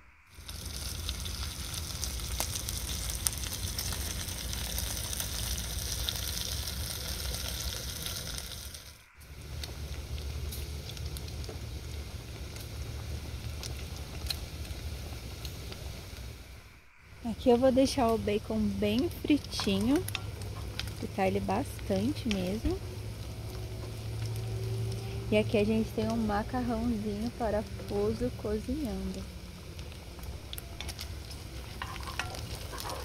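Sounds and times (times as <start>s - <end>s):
bacon sizzling in a pan: 0.3s - 33.0s.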